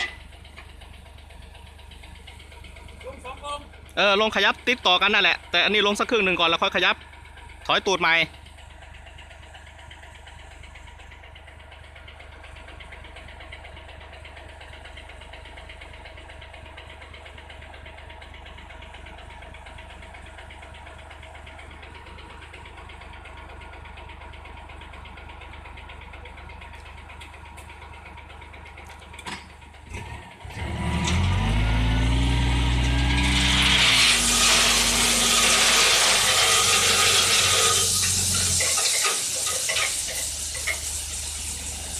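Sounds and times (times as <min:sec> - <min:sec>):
diesel truck engine: 0:00.0 - 0:41.9
hydraulic hoist tipping: 0:32.7 - 0:41.9.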